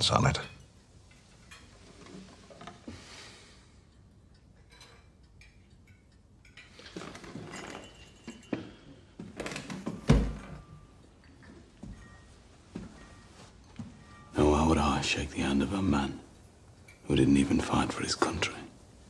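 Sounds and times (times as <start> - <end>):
chair shifted on floor: 6.8 - 10.8.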